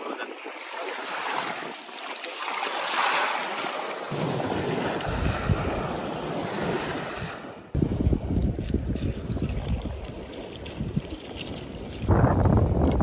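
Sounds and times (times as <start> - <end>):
small waves breaking on shore: 0.0 - 8.0
wind buffeting microphone: 4.1 - 13.0.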